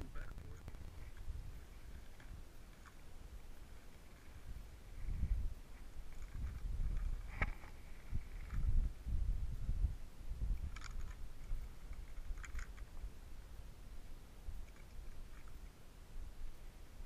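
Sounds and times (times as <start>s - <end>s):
handling clicks and rustles: 10.6s - 13.1s.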